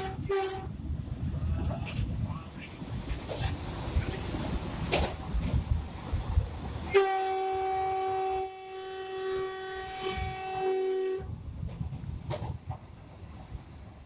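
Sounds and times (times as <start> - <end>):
train horn blast: 0.0 - 0.8, 6.8 - 11.3
train rumbling at speed: 0.0 - 14.0.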